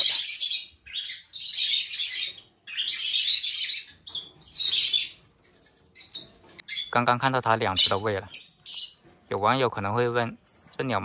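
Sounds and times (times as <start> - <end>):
parrot nestlings raspy begging calls: 0.0 - 7.0, 7.6 - 9.6.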